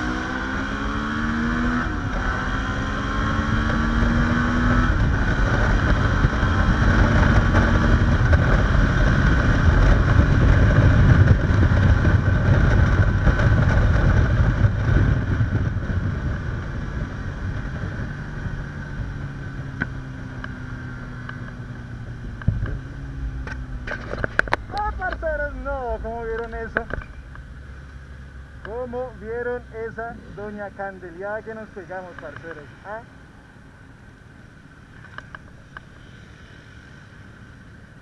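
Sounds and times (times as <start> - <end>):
wind rushing over microphone: 0.0 - 27.6
motorcycle engine accelerating: 0.0 - 33.0.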